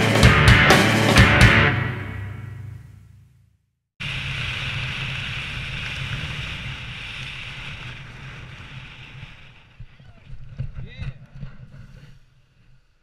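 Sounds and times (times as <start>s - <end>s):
wind rushing over microphone: 4.0s - 12.7s.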